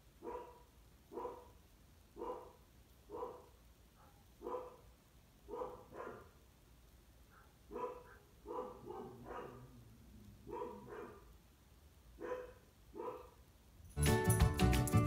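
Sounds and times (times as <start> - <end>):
puppy barking: 0.2 - 1.6, 2.2 - 6.4, 7.3 - 9.8, 10.4 - 11.4, 12.2 - 13.4.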